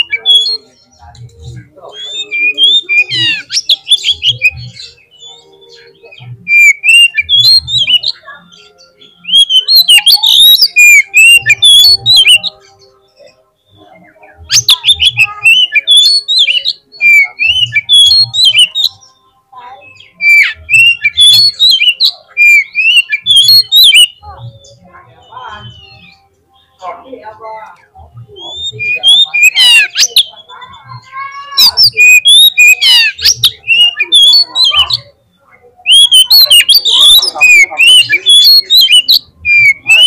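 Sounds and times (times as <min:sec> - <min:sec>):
bird singing whistles: 0:01.9 - 0:12.6, 0:14.0 - 0:19.1, 0:19.9 - 0:24.7, 0:28.4 - 0:35.1, 0:35.9 - 0:40.0.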